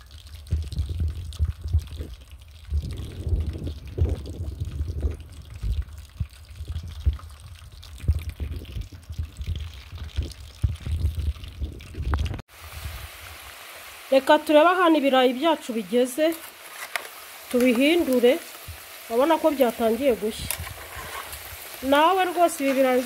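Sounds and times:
oil bubbling and popping: 0.0s - 23.0s
wind buffeting microphone: 0.4s - 13.0s.

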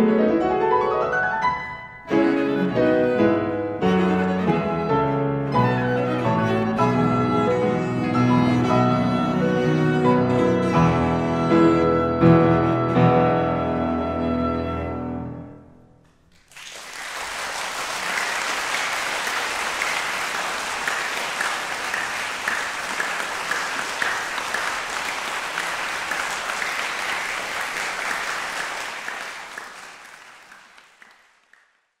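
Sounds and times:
audience applauding: 16.3s - 32.0s.

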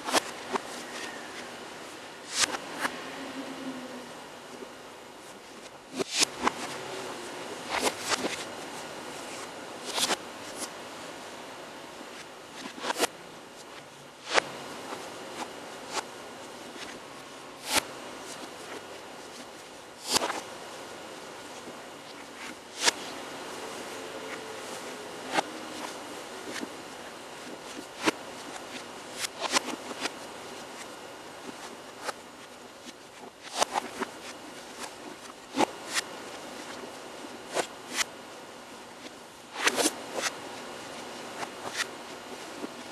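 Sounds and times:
steady hiss: 0.0s - 42.9s.

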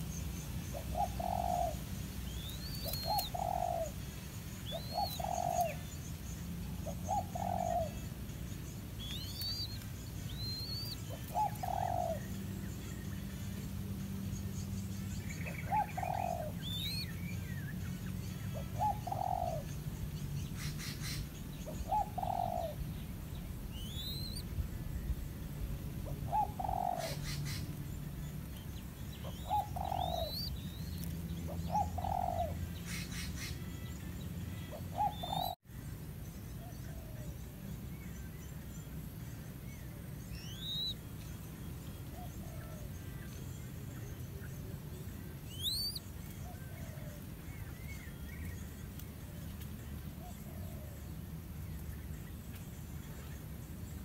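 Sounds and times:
small birds chirping: 0.0s - 54.0s
dove cooing: 0.7s - 4.0s, 4.7s - 5.8s, 6.8s - 8.0s, 10.4s - 12.3s, 15.5s - 17.0s, 18.5s - 19.7s, 20.8s - 22.8s, 26.1s - 27.6s, 29.2s - 30.5s, 31.5s - 33.5s, 34.7s - 35.6s.

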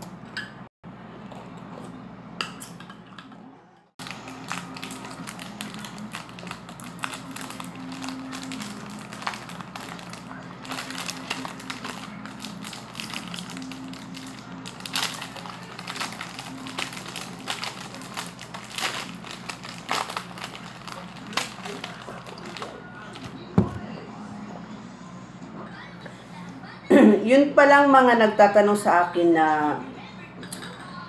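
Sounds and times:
plastic wrapper crinkling: 4.0s - 23.5s.

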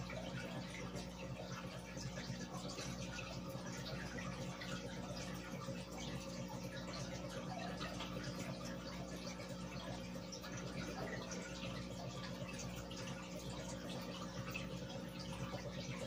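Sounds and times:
air bubbles popping in water: 0.0s - 16.0s.

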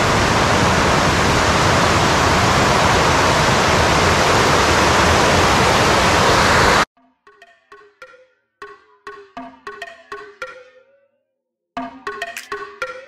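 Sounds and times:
waterfall roaring: 0.0s - 6.8s.

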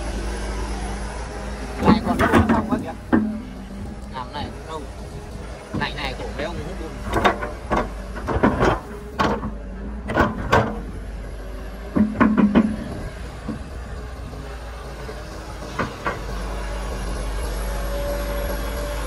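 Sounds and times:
excavator diesel engine running: 0.0s - 19.0s
excavator bucket clanks and knocks: 1.8s - 3.9s, 6.9s - 11.0s, 11.8s - 13.7s, 15.6s - 16.5s.

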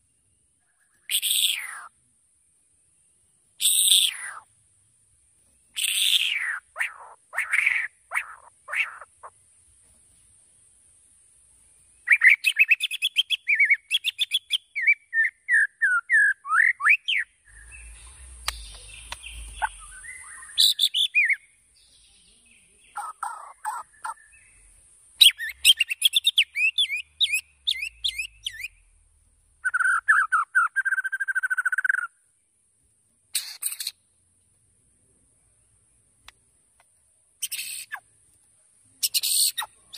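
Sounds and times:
bird singing whistled notes: 0.0s - 4.5s, 5.6s - 9.1s, 11.8s - 32.4s, 37.4s - 38.1s, 39.0s - 39.9s
fast buzzy bird trill: 5.6s - 9.4s, 16.6s - 21.4s.

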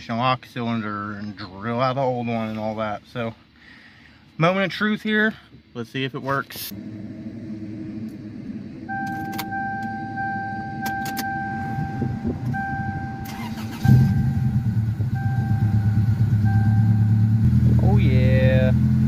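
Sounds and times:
car engine cranking: 6.3s - 19.0s
car engine idling: 6.3s - 19.0s
dashboard warning beeps: 8.8s - 17.3s.

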